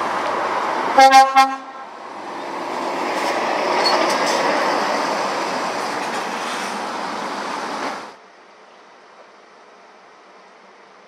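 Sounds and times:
lorry passing: 0:00.0 - 0:08.2.

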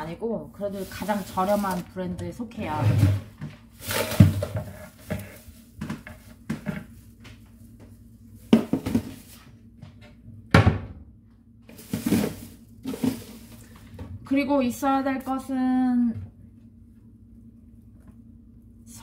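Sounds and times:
kitchen items knocking and clattering: 0:00.9 - 0:07.0, 0:08.5 - 0:09.3, 0:11.8 - 0:14.2.

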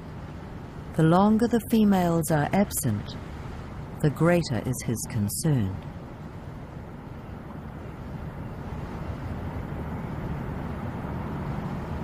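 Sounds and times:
wind buffeting microphone: 0:05.9 - 0:12.0.

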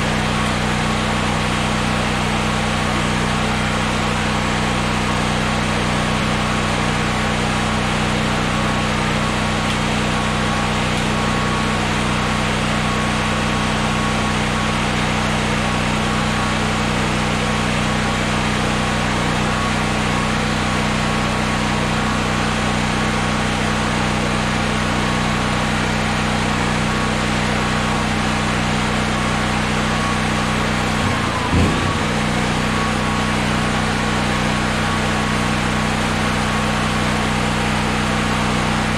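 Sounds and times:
generator engine running: 0:00.0 - 0:38.9.

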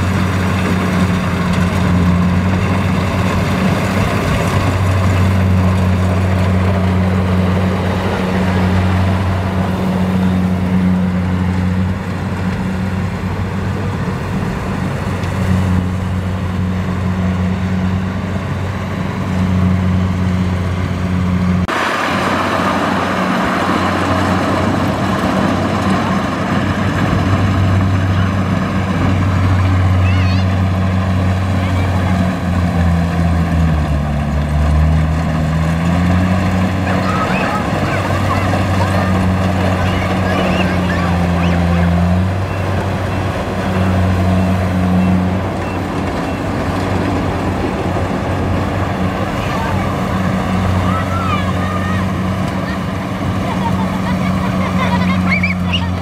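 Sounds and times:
combine harvester diesel engine drone: 0:00.0 - 0:56.0
high-pitched machinery noise: 0:34.5 - 0:56.0.

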